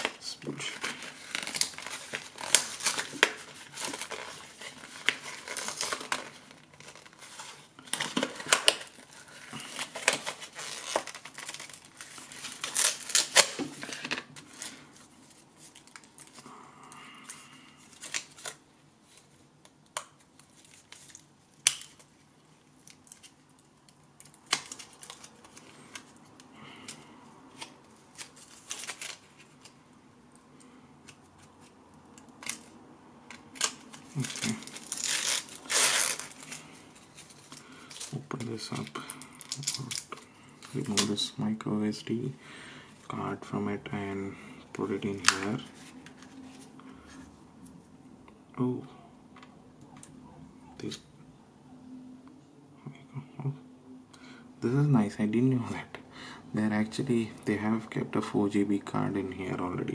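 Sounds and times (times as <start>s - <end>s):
packaging crinkling and tearing: 0.0s - 16.5s, 17.2s - 29.8s, 31.1s - 41.4s, 44.8s - 47.2s.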